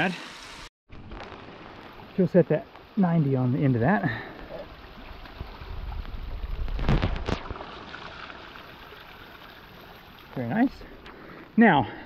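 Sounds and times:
water splashing on rocks: 0.9 - 10.5
water gushing from a pipe: 3.8 - 10.8.

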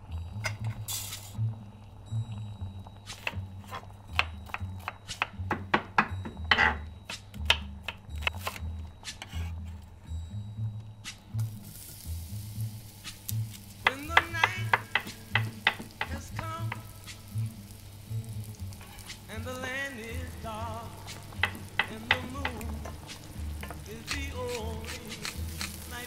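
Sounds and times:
background music with low beat: 0.0 - 26.0
sauce sizzling in a pot: 0.8 - 1.5, 11.4 - 26.0
knife chopping on wooden board: 4.2 - 8.6.

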